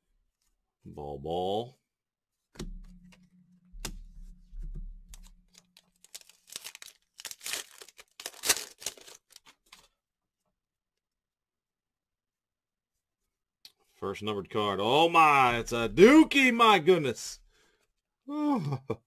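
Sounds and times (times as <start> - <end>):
low hum: 2.6 - 6.0
wrapper tearing and crinkling: 5.6 - 9.9.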